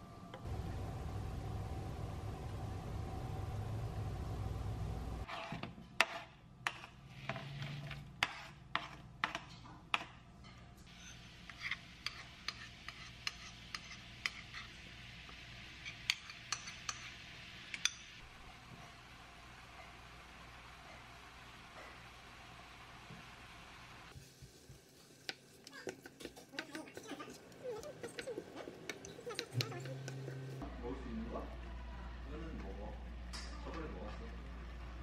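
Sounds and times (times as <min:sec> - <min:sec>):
steady low hum with faint tone: 0:00.0 - 0:24.2.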